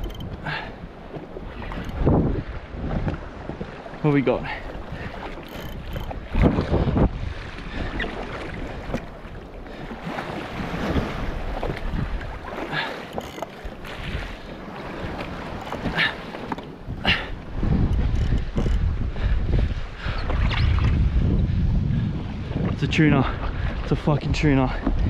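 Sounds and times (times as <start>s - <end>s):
waves slapping against hull: 0.0s - 25.0s
wind buffeting microphone: 0.0s - 25.0s.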